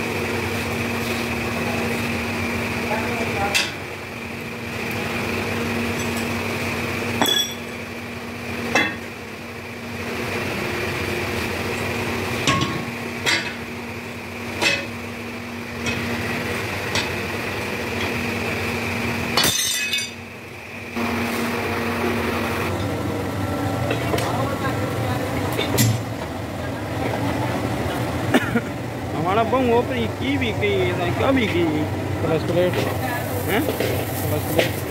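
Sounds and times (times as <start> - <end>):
steady machine hum: 0.0 - 34.9
metal-on-metal clinks: 7.2 - 7.8.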